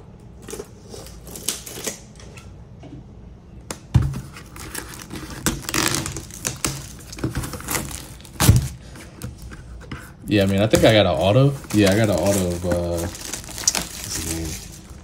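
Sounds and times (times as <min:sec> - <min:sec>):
plastic wrap crinkling and tearing: 0:04.2 - 0:08.9, 0:10.3 - 0:15.0.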